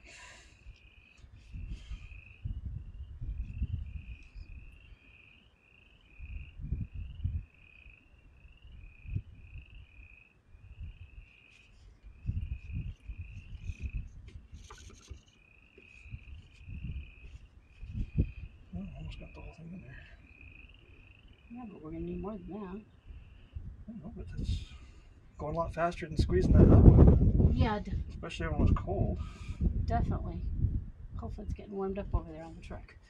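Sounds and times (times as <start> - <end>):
frogs chirping: 0.3 - 26.9
wind gusts on microphone: 1.3 - 4.8, 6.2 - 7.5, 8.6 - 10.0, 11.9 - 15.1, 16.0 - 19.6, 21.8 - 33.0.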